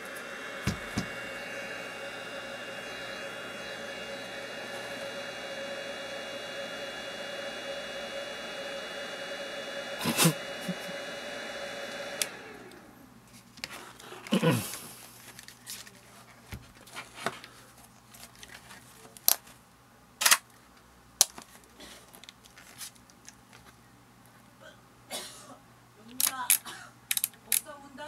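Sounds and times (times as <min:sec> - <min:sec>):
small motor whirring: 0:00.0 - 0:13.0.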